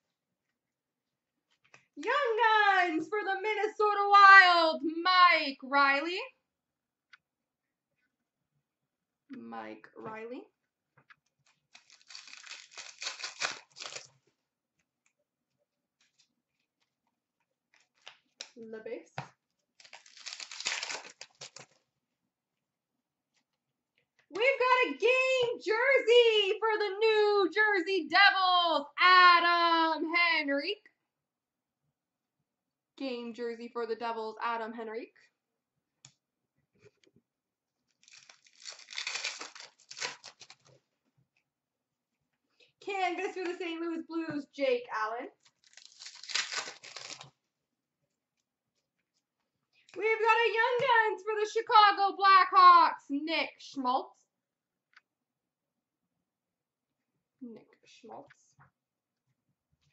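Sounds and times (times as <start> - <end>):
wrapper ripping and crinkling: 11.4 - 14.2, 19.8 - 21.8, 37.9 - 40.8, 45.4 - 47.4.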